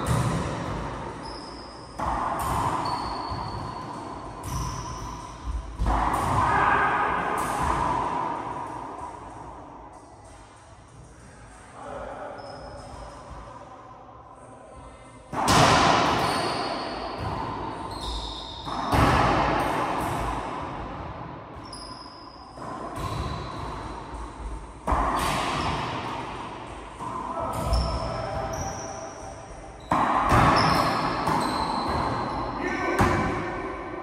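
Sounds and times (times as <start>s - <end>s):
sneakers squeaking: 0.0s - 6.8s, 12.2s - 13.4s, 15.5s - 19.4s, 21.6s - 34.0s
racquetball cracks with echo: 0.0s - 10.6s, 15.3s - 21.8s, 22.5s - 29.1s, 29.7s - 34.0s.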